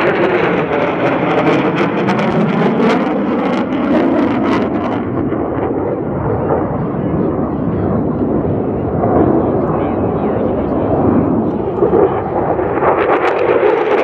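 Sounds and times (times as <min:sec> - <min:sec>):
jet roar: 0:00.0 - 0:14.0
afterburner crackling: 0:08.6 - 0:14.0.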